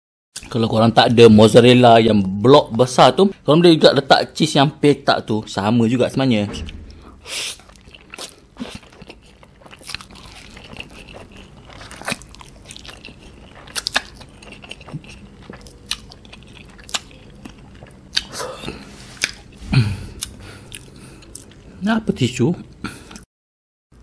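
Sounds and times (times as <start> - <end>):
wet chewing: 7.4 - 21.7.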